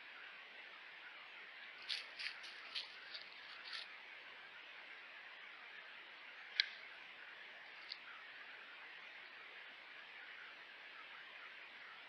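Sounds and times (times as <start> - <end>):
crackles in dry leaf litter: 1.7 - 4.0.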